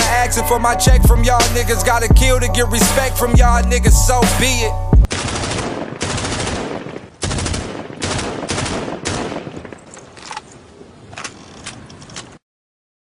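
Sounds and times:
automatic gunfire: 5.1s - 9.9s
scattered gunshots: 5.1s - 9.9s.

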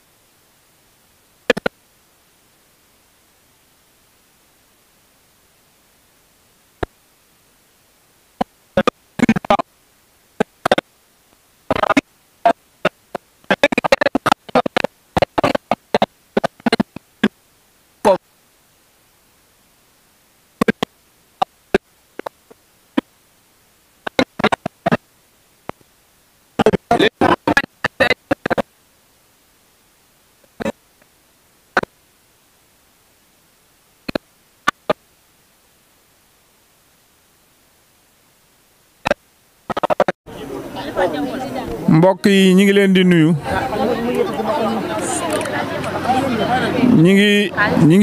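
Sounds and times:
indistinct quiet voices: 39.7s - 42.2s, 42.9s - 48.0s.

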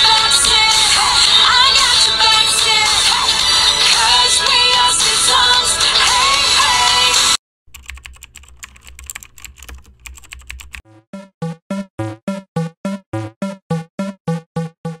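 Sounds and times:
song playing: 0.0s - 7.4s, 10.8s - 15.0s
rapid typing-like clicking: 7.7s - 10.8s.

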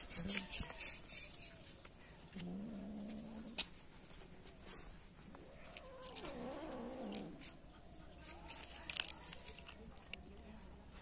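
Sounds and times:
cat growling: 5.9s - 7.4s.

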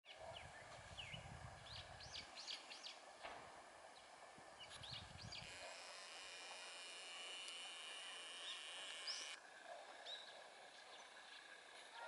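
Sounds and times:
faint birdsong whistled notes: 0.1s - 3.0s, 4.0s - 5.6s, 8.4s - 9.4s.

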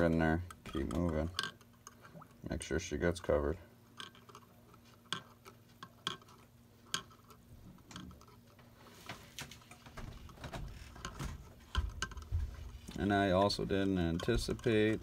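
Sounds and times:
faint steady hum: 0.0s - 15.0s
metal tapping against glass jar: 0.3s - 2.0s, 5.1s - 7.3s, 13.4s - 15.0s.

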